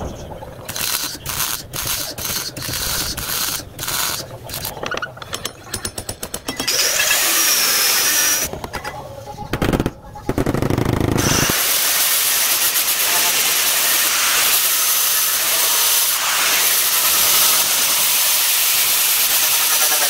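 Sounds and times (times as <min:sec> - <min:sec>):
angle grinder on metal panel: 0:00.7 - 0:04.8, 0:06.6 - 0:08.5, 0:11.2 - 0:20.0
stud welder zaps and clicks: 0:00.7 - 0:04.8.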